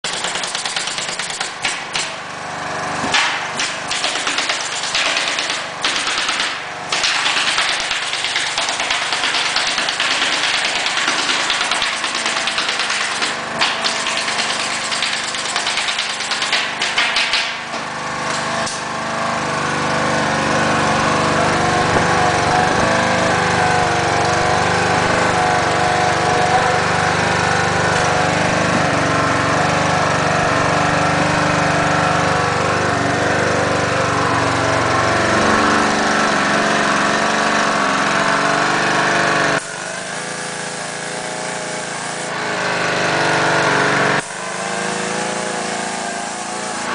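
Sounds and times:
pneumatic stapler firing: 0.0s - 2.3s, 3.0s - 18.9s
air compressor running: 0.0s - 46.9s.

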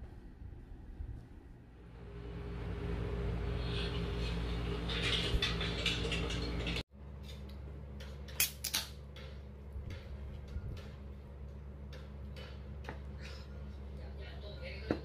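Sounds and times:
soft hum: 0.0s - 8.3s
low hum with crackling: 0.0s - 15.0s.

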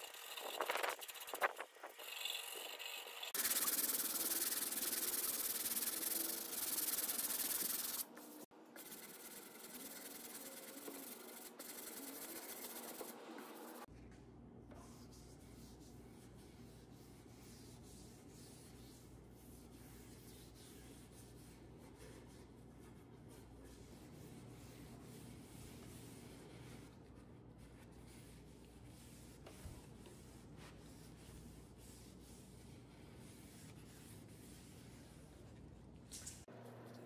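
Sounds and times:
sandpaper rubbing on wood: 0.0s - 13.9s
rag wiping wood: 3.4s - 8.0s.

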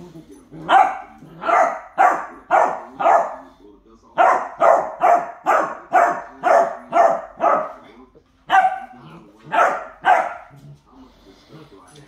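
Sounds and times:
dog barking: 0.7s - 3.6s, 4.2s - 7.9s, 8.5s - 10.6s.

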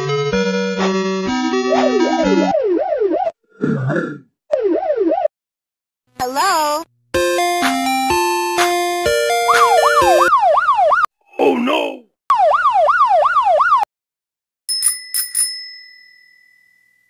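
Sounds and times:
cartoon police siren: 1.7s - 3.3s, 9.3s - 11.1s, 12.3s - 13.9s
ice cream truck jingle: 7.2s - 10.3s
small bell ringing: 14.7s - 17.0s.

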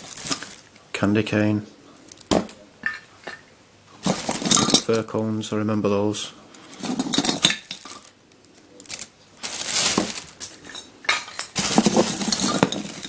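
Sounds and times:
plastic bag crinkling: 0.0s - 0.7s, 4.0s - 5.0s, 6.6s - 13.0s.

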